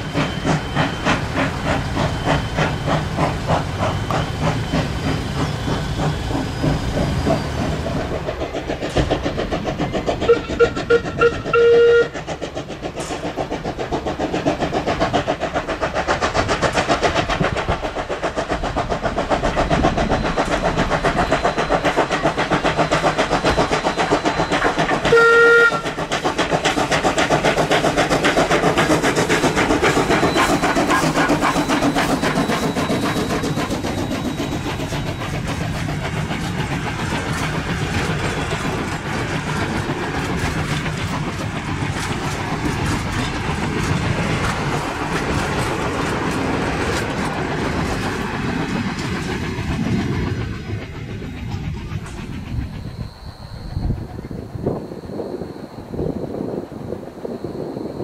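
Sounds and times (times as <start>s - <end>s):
steam locomotive chuffing: 0.0s - 58.0s
steam whistle toots: 10.2s - 12.2s, 24.4s - 26.0s.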